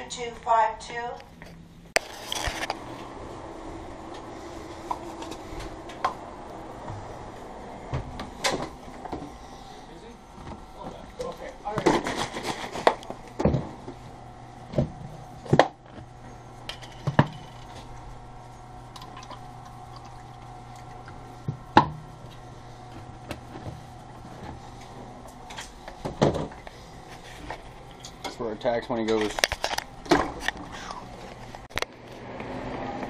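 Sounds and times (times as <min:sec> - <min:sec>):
steady hum: 0:00.0 - 0:33.0
juice pouring into a cup: 0:18.9 - 0:21.4.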